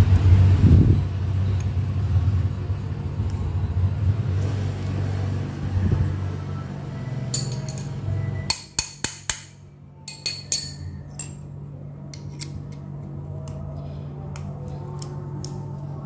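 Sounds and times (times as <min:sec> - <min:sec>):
steady low hum: 0:00.0 - 0:16.0
hand tool clinking on metal: 0:07.3 - 0:09.4, 0:10.0 - 0:11.5.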